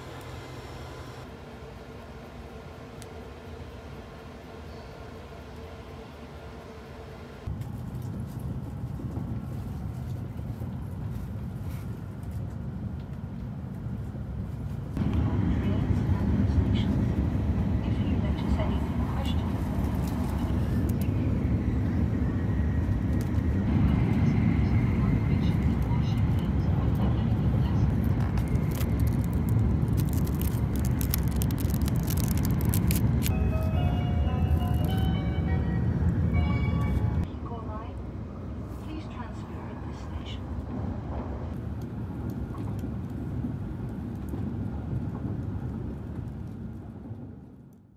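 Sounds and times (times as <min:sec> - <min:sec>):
train rumbling at speed: 0:00.0 - 0:47.9.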